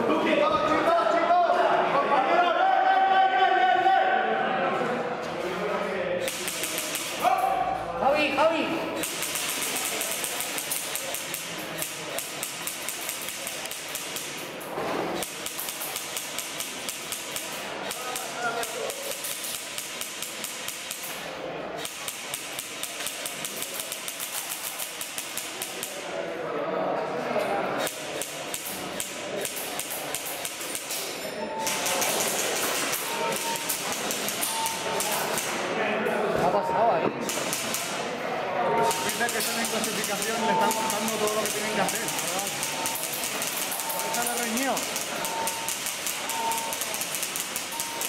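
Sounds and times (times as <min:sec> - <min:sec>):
airsoft gun shots: 0:06.2 - 0:07.4, 0:09.0 - 0:14.4
short high beep: 0:34.4 - 0:35.0, 0:43.8 - 0:46.8, 0:47.7 - 0:48.0.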